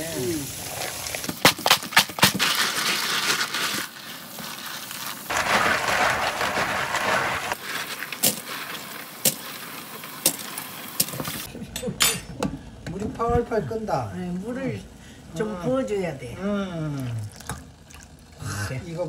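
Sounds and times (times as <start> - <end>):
running tap water splashing: 0.0 - 1.5, 4.3 - 11.5.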